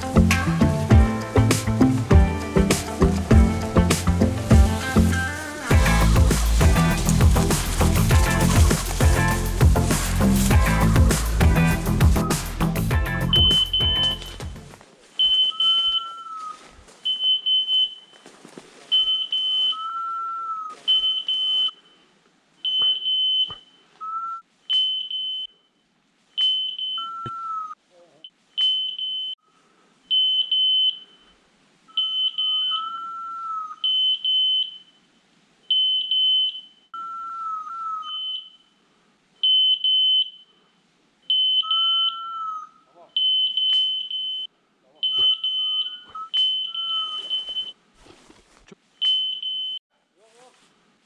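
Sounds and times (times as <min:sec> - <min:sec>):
short high beeps: 0:13.2 - 0:14.6, 0:32.0 - 0:32.8.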